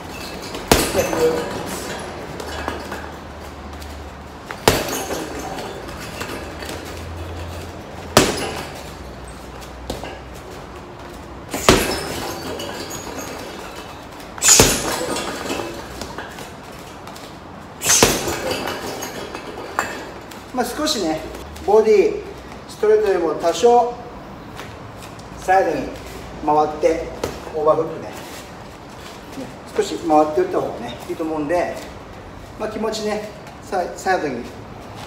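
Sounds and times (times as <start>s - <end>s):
gloves punching heavy bag: 0.2s - 3.1s, 4.5s - 10.2s, 11.5s - 16.5s, 17.8s - 18.8s.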